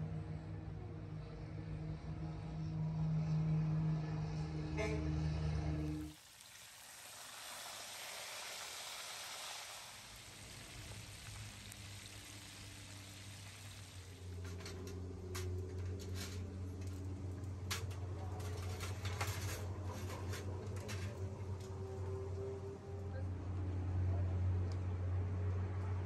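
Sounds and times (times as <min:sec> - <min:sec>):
fish sizzling in hot oil: 0:06.1 - 0:17.3.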